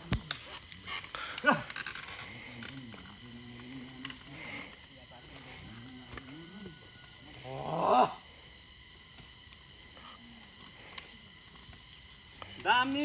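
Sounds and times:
insects buzzing and chirping: 0.0s - 13.0s.

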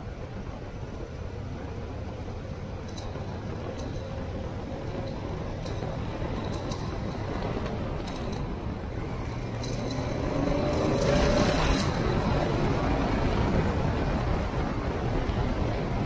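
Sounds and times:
wind and road noise: 0.0s - 16.0s.

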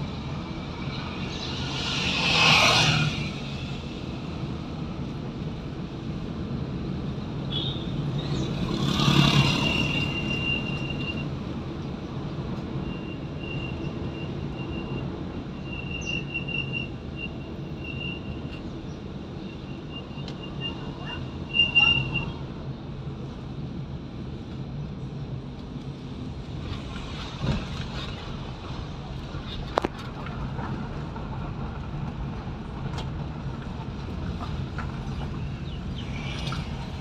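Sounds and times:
car engine and tyre drone: 0.0s - 37.0s
motorbike passing: 8.5s - 10.0s.

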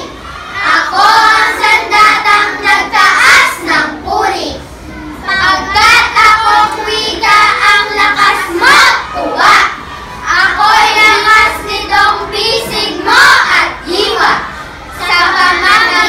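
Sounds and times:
girls chanting in unison: 0.0s - 16.0s.

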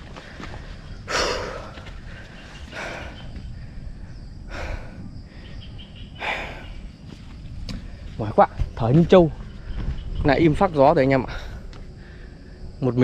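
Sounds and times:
man panting heavily: 0.0s - 7.1s.

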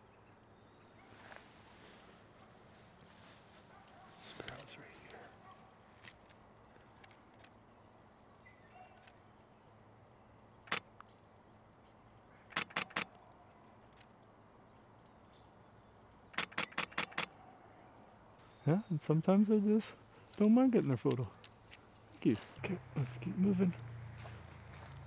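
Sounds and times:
camera shutter clicking: 12.5s - 13.1s, 16.4s - 17.3s.

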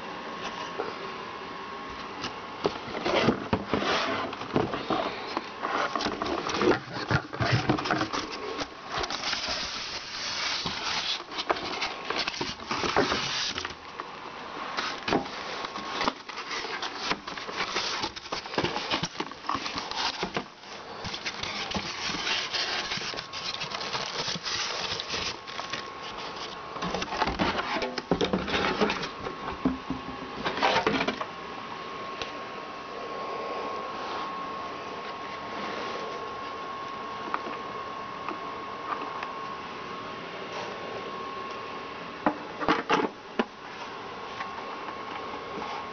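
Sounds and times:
cardboard and plastic rustling: 1.9s - 14.1s, 14.7s - 31.3s.

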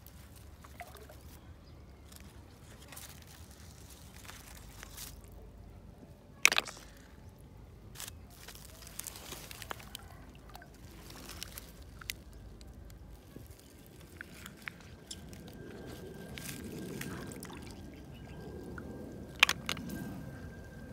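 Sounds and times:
water trickling and sloshing: 0.0s - 5.3s, 8.4s - 20.9s
soft squishing: 0.0s - 5.5s, 6.4s - 19.9s
snail shells clacking: 6.3s - 17.0s, 18.6s - 20.1s.

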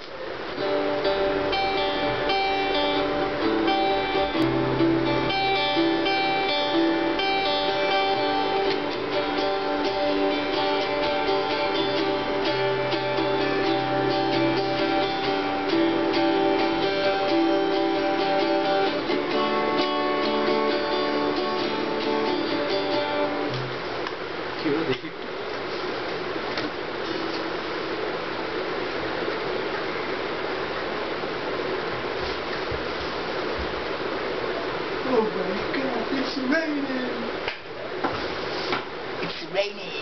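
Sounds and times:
acoustic guitar chords: 0.5s - 24.0s.

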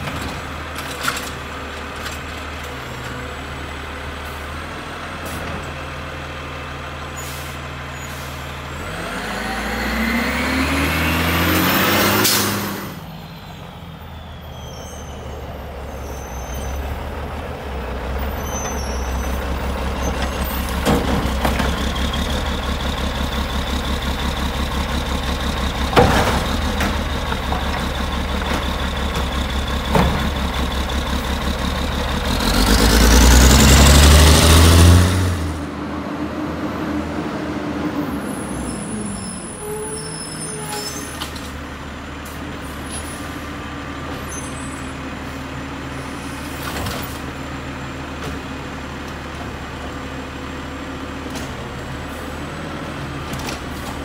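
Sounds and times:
engine revving: 8.7s - 13.1s, 30.9s - 38.0s
garbage truck engine idling: 15.4s - 32.7s.

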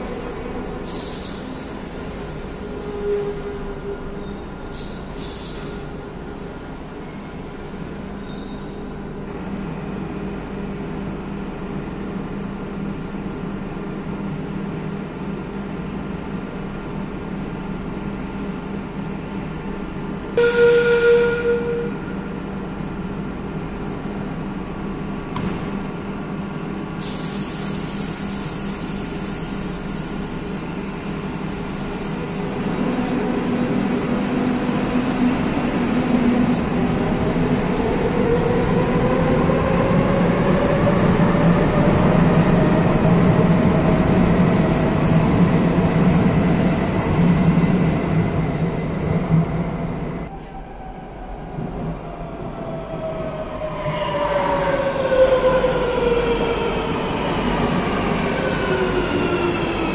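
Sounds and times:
train humming at platform: 0.0s - 59.9s
brakes releasing air hiss: 4.6s - 5.8s, 27.0s - 30.6s.

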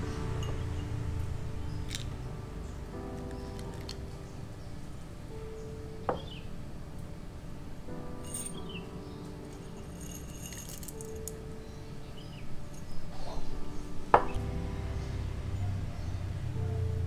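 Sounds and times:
low steady rumble: 0.0s - 5.6s, 14.2s - 17.0s
soft background music: 0.0s - 17.0s.

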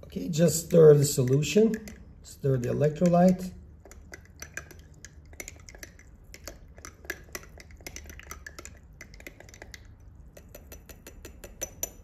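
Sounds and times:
stick clinking against glass: 10.4s - 12.0s.

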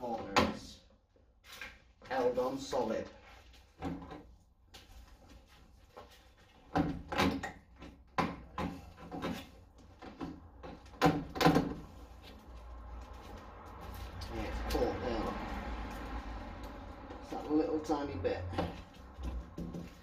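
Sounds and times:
metallic clunks and knocks: 6.7s - 11.8s.

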